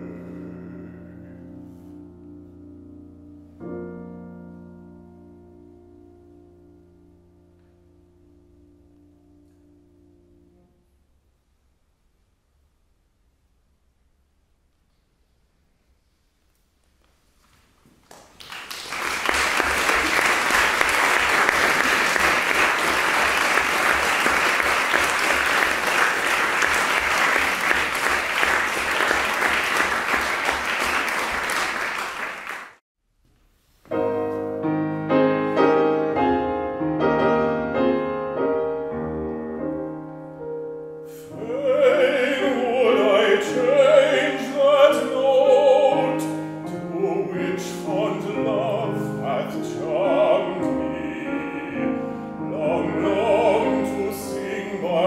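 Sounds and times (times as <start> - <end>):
baritone singing with vibrato: 0.0 - 1.7, 41.2 - 55.0
piano playing: 0.0 - 11.0, 19.2 - 32.6, 33.9 - 55.0
audience applauding: 18.0 - 32.8.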